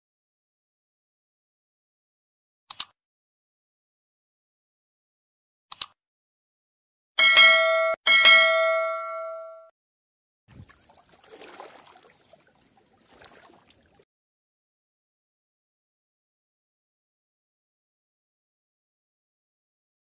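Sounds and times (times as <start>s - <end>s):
mouse double click: 2.7s - 3.0s, 5.7s - 6.0s
notification bell dings: 7.2s - 9.7s
faint outdoor hiss and rustling: 10.5s - 14.0s.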